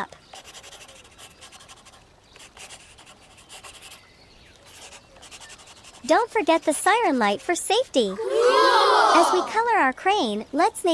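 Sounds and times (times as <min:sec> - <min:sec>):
marker scratching on paper: 0:00.3 - 0:04.0, 0:04.6 - 0:07.8.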